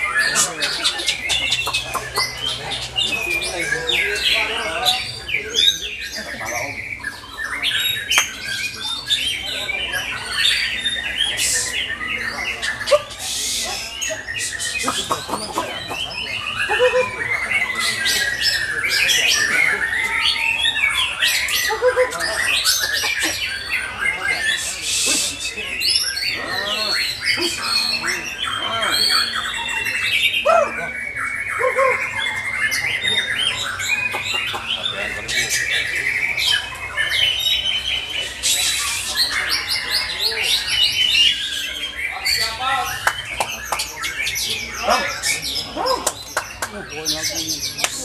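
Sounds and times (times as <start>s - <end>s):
songbirds singing: 0.0s - 48.0s.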